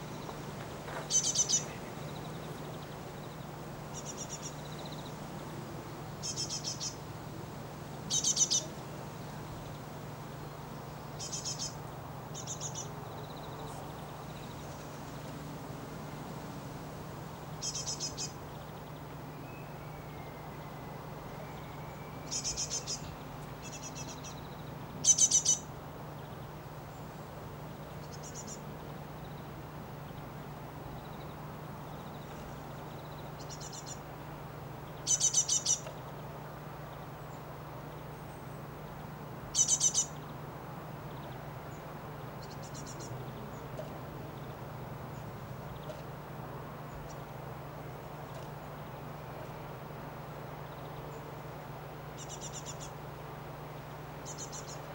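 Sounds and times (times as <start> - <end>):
steady low hum: 0.0 - 54.9
birds chirping rapidly: 1.1 - 5.2, 5.8 - 7.4, 8.1 - 15.4, 17.6 - 34.0, 34.8 - 36.1, 36.8 - 40.4, 41.0 - 46.1, 52.0 - 53.0, 53.6 - 54.9.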